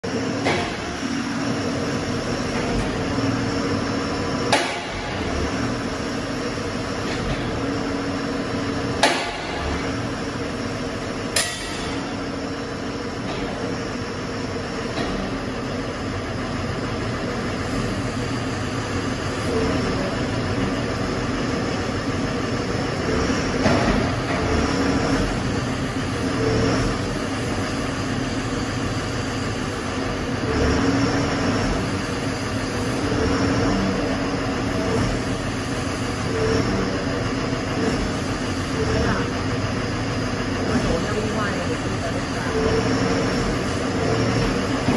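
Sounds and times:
diesel engine running: 0:00.0 - 0:44.9
sharp metal clanks: 0:11.3 - 0:12.2.

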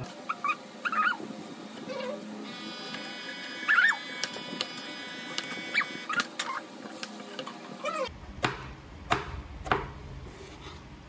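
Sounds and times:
animal cries: 0:00.3 - 0:01.2, 0:03.6 - 0:04.1.

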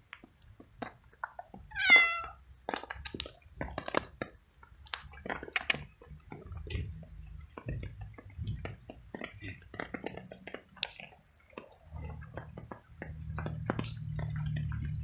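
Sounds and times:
cat chewing wetly: 0:00.0 - 0:15.0
cat meowing: 0:01.7 - 0:02.4.

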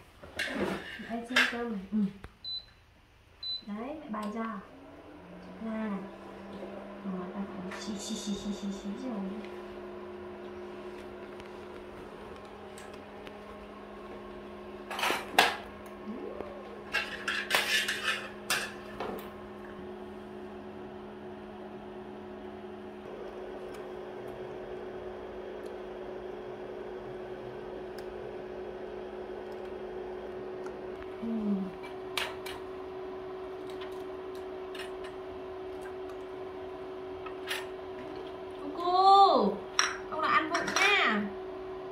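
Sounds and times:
steady electric hum: 0:00.0 - 0:41.9
bowls and wok clattering: 0:16.8 - 0:19.0.

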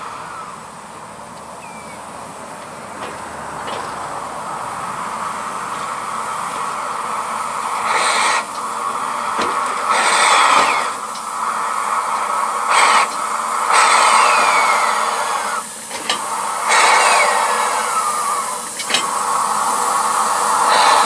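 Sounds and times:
steam locomotive hissing steam: 0:00.0 - 0:21.0
faint falling whistles: 0:01.6 - 0:02.0, 0:13.9 - 0:15.7.

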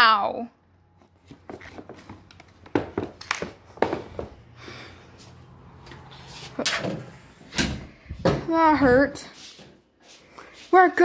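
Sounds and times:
handling knocks and bumps: 0:01.2 - 0:04.4.

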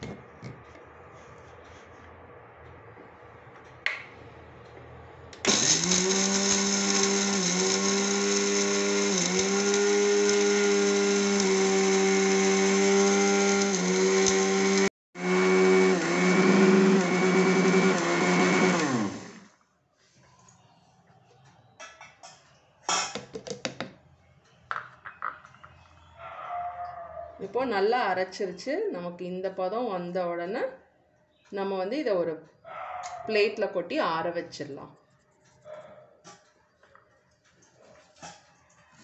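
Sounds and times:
mixer grinder whining: 0:05.4 - 0:19.5.

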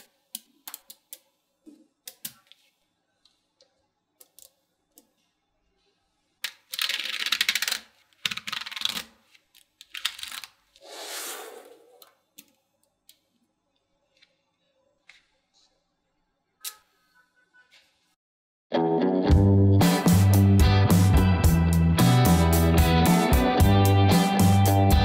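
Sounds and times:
brief scraping: 0:10.8 - 0:12.0.

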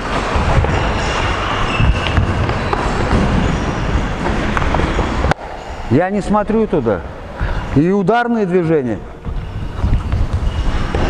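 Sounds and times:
room noise: 0:00.0 - 0:11.0
footsteps on wooden floor: 0:09.2 - 0:11.0.

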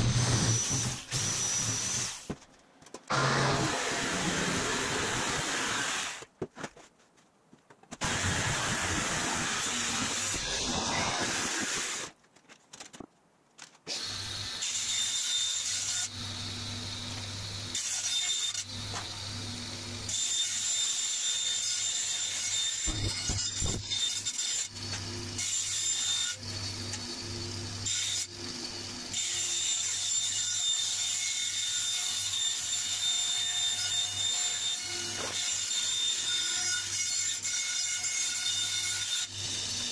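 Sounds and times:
jigsaw cutting metal sheet: 0:00.0 - 0:02.3, 0:03.1 - 0:06.2, 0:08.0 - 0:12.1, 0:22.8 - 0:25.9
bandsaw humming and whining: 0:03.1 - 0:06.2.

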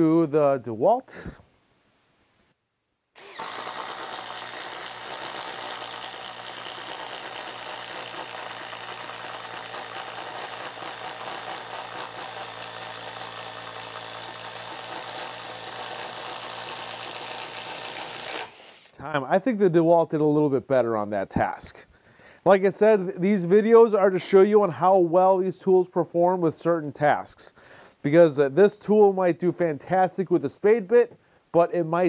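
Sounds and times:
impact driver hammering: 0:03.2 - 0:18.7.

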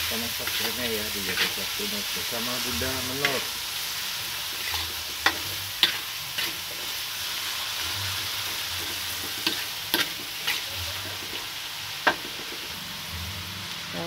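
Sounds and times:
metal spatula scraping wok: 0:00.0 - 0:13.9
vegetables sizzling in a wok: 0:00.0 - 0:14.0.

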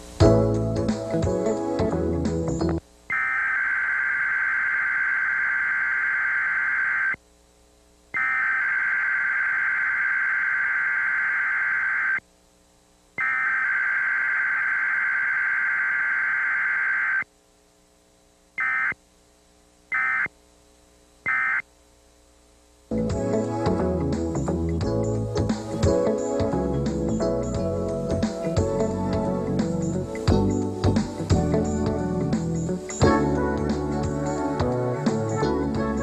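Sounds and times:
digital data tone bursts: 0:03.1 - 0:07.2, 0:08.2 - 0:12.2, 0:13.2 - 0:17.3, 0:18.6 - 0:19.0, 0:19.9 - 0:20.3, 0:21.3 - 0:21.6.

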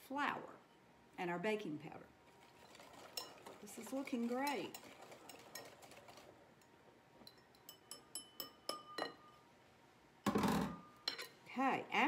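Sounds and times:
whisk scraping in glass bowl: 0:02.4 - 0:06.3
whisk clinking against glass: 0:02.6 - 0:06.7, 0:07.3 - 0:09.2.

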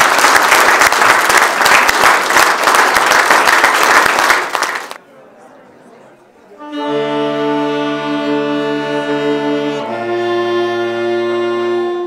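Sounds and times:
saxophone quartet playing chords: 0:06.6 - 0:12.0.

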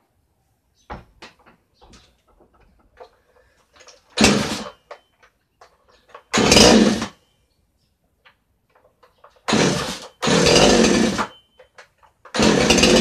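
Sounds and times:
knocks and clicks of handling: 0:00.8 - 0:06.3, 0:08.1 - 0:09.5, 0:11.3 - 0:12.4
chainsaw recoil starter pulls: 0:03.8 - 0:04.9, 0:06.0 - 0:07.2, 0:09.2 - 0:11.4, 0:12.2 - 0:13.0.

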